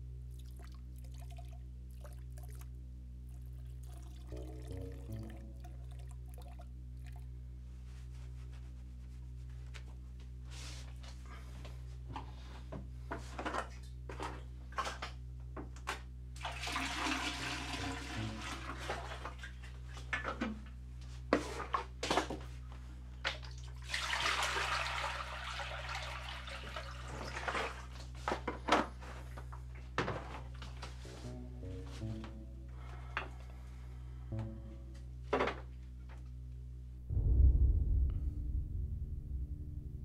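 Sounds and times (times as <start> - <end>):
water pouring and splashing: 0.3 - 2.7, 3.4 - 7.3, 16.4 - 20.3, 23.3 - 28.2.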